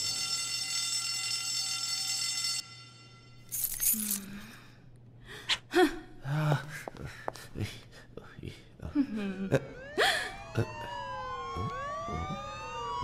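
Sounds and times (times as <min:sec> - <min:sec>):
alarm tone: 0:00.0 - 0:03.4, 0:09.6 - 0:13.0.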